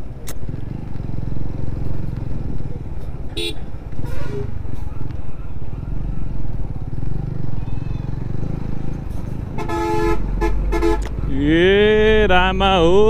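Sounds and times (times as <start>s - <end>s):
motorcycle engine rumbling: 0.0s - 13.0s
vehicle horn honking: 3.4s - 4.6s, 9.5s - 11.1s.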